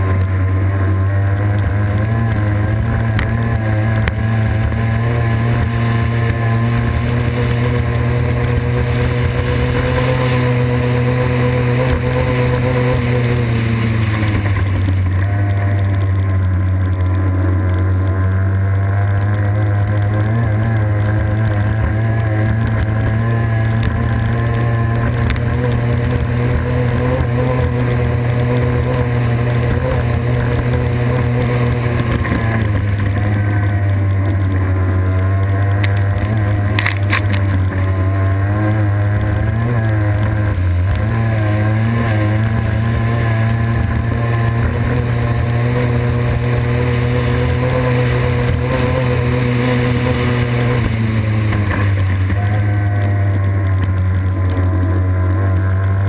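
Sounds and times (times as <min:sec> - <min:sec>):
boat engine running hard: 0:00.0 - 0:56.0
rushing water and wind: 0:01.3 - 0:17.2.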